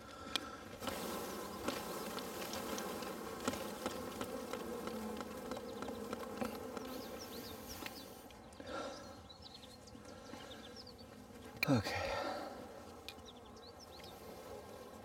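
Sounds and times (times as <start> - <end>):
honeybees buzzing: 0.0 - 15.0.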